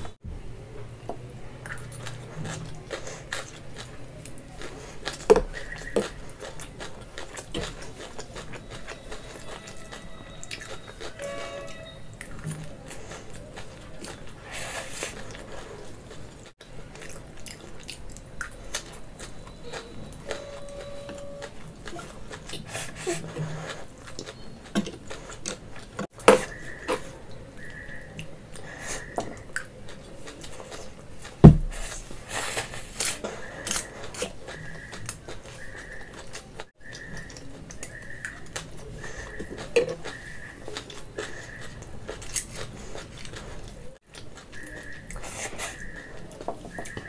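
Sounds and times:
chewing noodles: 1.6 - 47.0
loud thump: 31.4 - 31.8.

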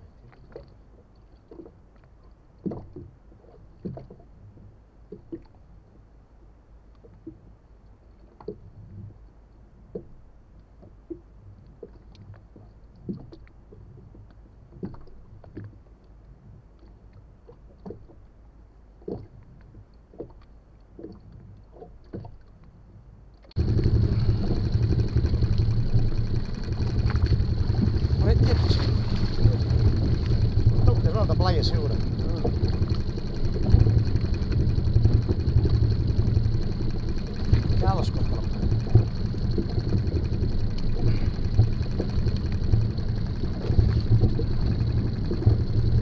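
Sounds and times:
water slapping boat hull: 0.0 - 46.0
wind rumble on microphone: 22.7 - 46.0.

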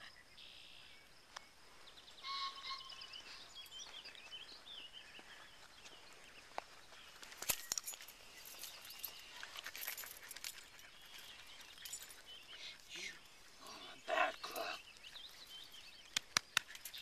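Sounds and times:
small birds twittering: 0.0 - 17.0
sharp clicks: 16.0 - 17.0.

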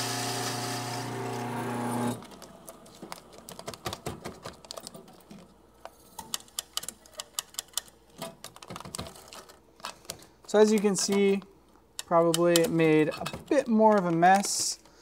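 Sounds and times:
coffee grinder motor humming: 0.0 - 2.6.

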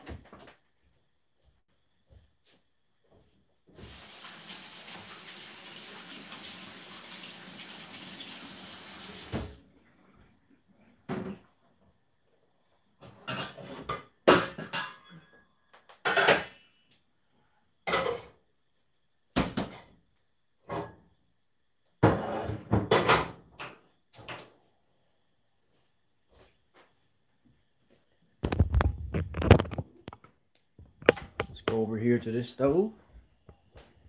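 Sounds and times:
faucet running: 3.8 - 9.6.

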